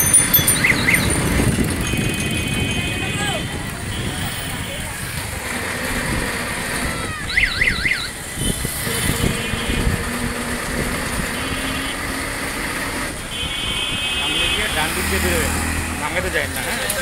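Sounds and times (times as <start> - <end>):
short high tones: 0.0 - 2.0
traffic engines rumbling: 0.0 - 17.0
warbling siren tone: 0.3 - 1.3.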